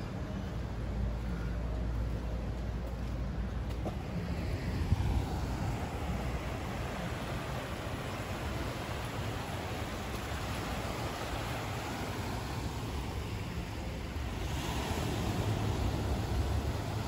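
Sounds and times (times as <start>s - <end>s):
wind buffeting microphone: 3.5s - 13.3s
small waves breaking on shore: 3.9s - 17.0s.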